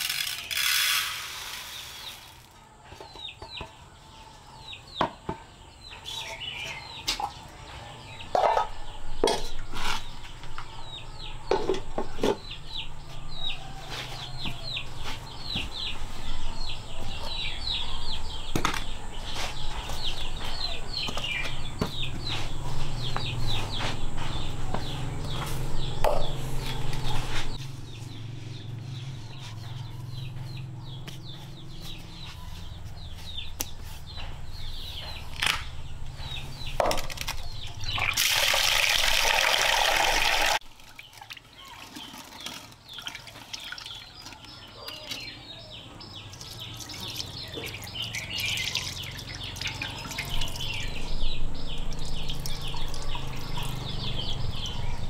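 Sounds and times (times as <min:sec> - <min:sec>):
chicks peeping: 0:12.0 - 0:35.3, 0:43.9 - 0:55.0.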